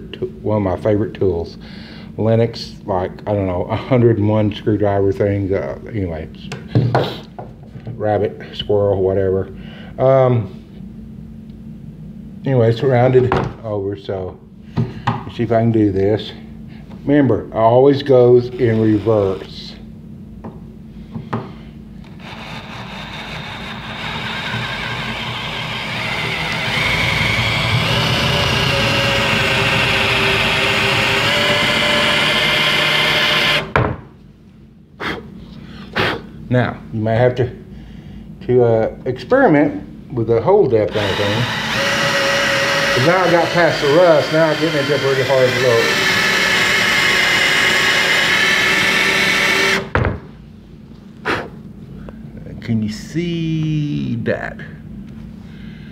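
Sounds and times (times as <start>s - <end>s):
cordless drill motor whine: 22.0s - 33.8s, 40.9s - 50.0s.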